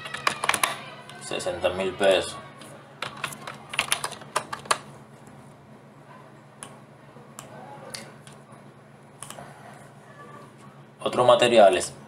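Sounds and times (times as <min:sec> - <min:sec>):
keyboard and mouse clicks: 0:00.0 - 0:00.8, 0:03.0 - 0:04.8.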